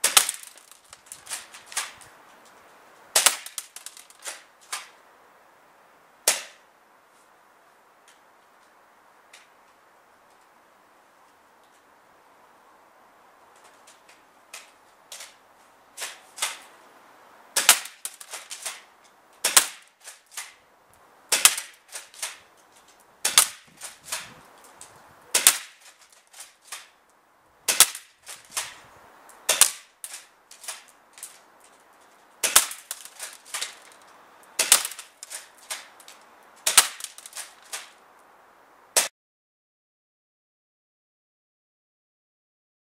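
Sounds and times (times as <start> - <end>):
pellets hitting paper target: 0.0 - 2.0, 3.1 - 4.9, 17.6 - 20.6, 21.3 - 22.4, 23.2 - 24.3, 25.3 - 27.0, 27.7 - 28.8, 29.5 - 31.4, 32.4 - 34.0, 34.6 - 38.0
airsoft shotgun cracks: 0.0 - 2.1, 3.1 - 5.0, 6.2 - 6.6, 16.0 - 16.7, 17.6 - 20.6, 21.3 - 22.5, 23.2 - 24.4, 25.3 - 26.9, 27.7 - 28.8, 29.5 - 31.4, 32.4 - 33.9, 34.6 - 38.0.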